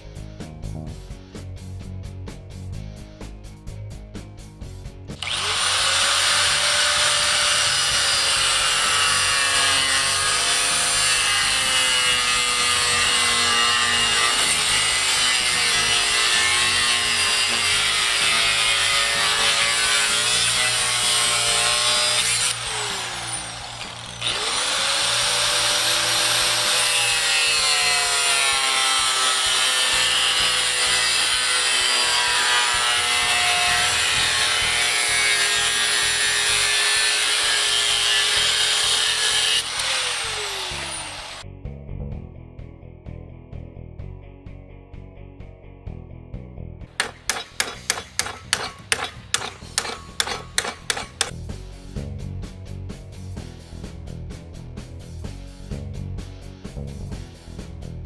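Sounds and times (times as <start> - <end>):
angle grinder cutting metal: 5.1 - 41.4, 47.0 - 51.4.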